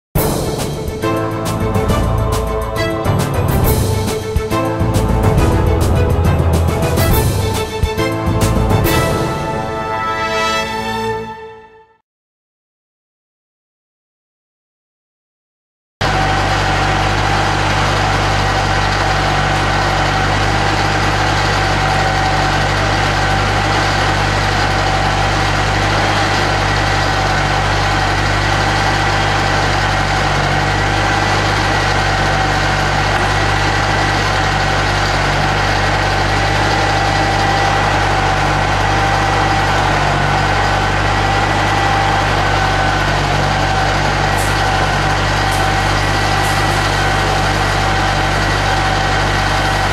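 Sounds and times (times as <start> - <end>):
engine droning with whine: 16.0 - 49.9.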